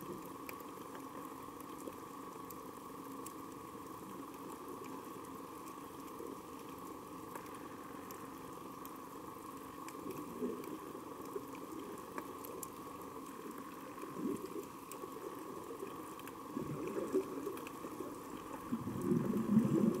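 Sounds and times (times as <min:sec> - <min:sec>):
faint clicks: 0:00.0 - 0:20.0
faint underwater hum: 0:00.0 - 0:20.0
bubbling gurgles: 0:13.6 - 0:20.0.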